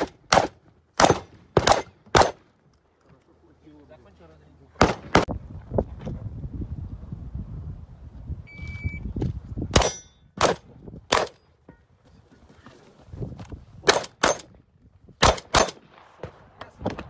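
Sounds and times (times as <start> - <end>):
shotgun shots: 0.0 - 2.5, 4.8 - 5.3, 9.7 - 11.4, 13.8 - 14.5, 15.2 - 17.0.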